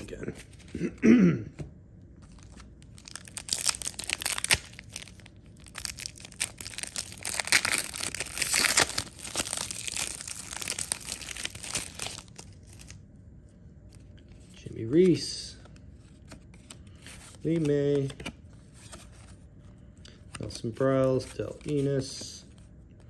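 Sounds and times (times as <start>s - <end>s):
foil wrapper tearing and crinkling: 3.0s - 13.0s.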